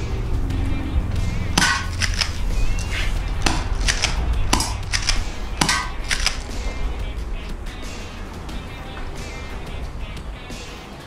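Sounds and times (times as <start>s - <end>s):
low steady rumble: 0.0s - 10.9s
pistol slide clicking: 1.6s - 6.6s.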